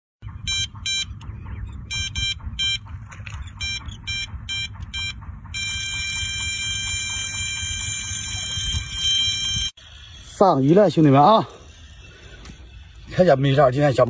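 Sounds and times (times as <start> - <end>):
bite alarm beeping: 0.2 - 9.8.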